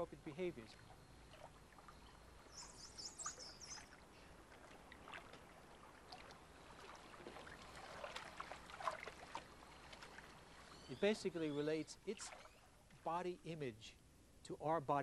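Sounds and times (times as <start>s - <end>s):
pool water splashing: 0.0s - 13.6s
high chirps: 2.4s - 3.8s.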